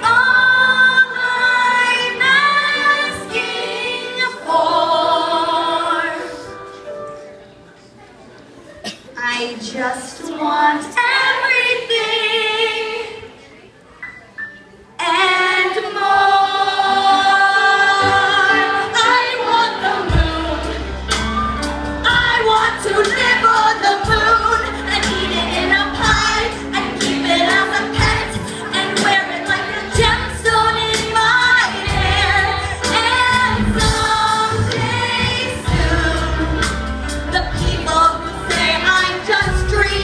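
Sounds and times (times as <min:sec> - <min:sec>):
woman singing: 0:09.2 - 0:13.3, 0:22.0 - 0:40.0
drums: 0:17.8 - 0:40.0
rock band playing: 0:20.0 - 0:40.0.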